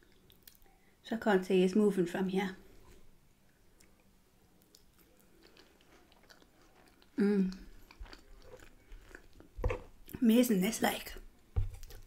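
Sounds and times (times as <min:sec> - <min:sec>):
person chewing: 0:03.8 - 0:10.2.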